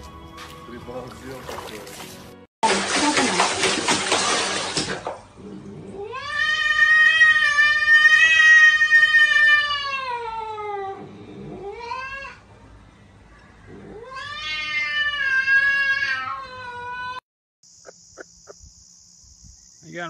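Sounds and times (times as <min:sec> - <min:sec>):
water splashing in a plastic tub: 0:00.8 - 0:05.3
cat yowling: 0:06.0 - 0:12.4, 0:13.7 - 0:17.2.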